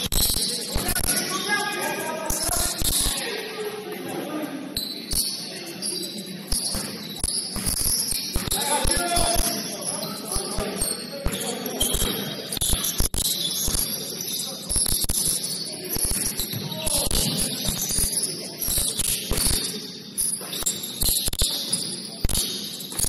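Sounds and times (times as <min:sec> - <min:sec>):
sneaker squeaks: 0:00.0 - 0:23.0
basketball bouncing: 0:06.5 - 0:09.7, 0:10.6 - 0:14.0, 0:16.0 - 0:23.0.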